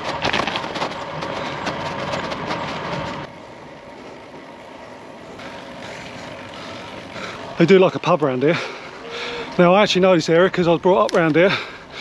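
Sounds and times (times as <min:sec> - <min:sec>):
bike tyres rushing hiss on tarmac: 0:01.2 - 0:10.0.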